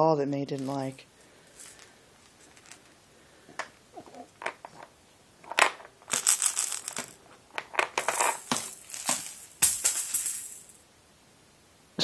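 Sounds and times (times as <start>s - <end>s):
baby rattle shaking: 6.0s - 10.8s.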